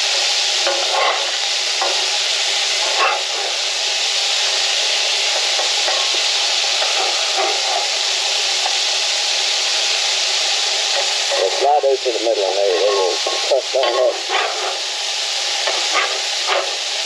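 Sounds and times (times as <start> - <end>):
patties sizzling in a skillet: 0.0 - 17.0
metal spatula scraping a pan: 0.7 - 2.0, 13.3 - 14.8, 15.7 - 16.8.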